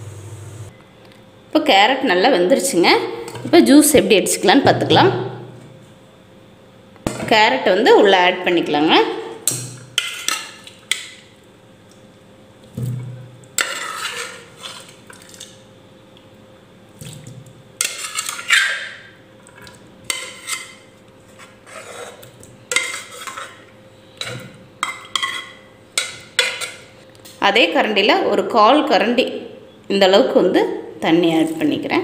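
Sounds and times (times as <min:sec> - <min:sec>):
plastic spoon scraping metal pot: 0:21.4 - 0:23.6.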